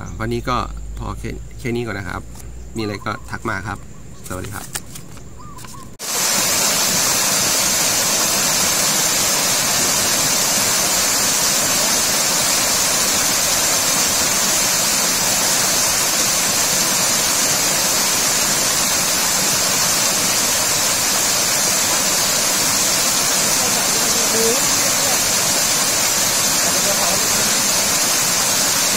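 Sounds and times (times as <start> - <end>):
waterfall rushing over rocks: 6.0 - 28.9.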